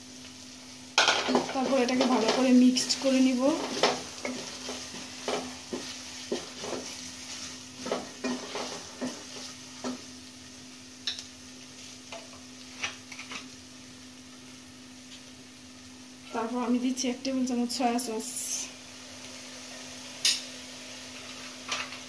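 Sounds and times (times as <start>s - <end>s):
oil sizzling: 0.0s - 22.0s
wooden spatula scraping a pot: 1.3s - 10.0s.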